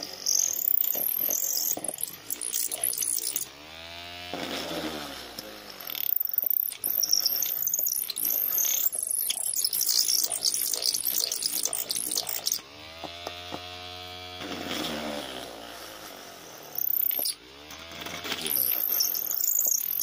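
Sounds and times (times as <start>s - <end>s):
drill bit boring into wood: 0.0s - 3.6s, 4.6s - 15.1s, 16.6s - 20.0s
motor humming: 0.0s - 14.5s.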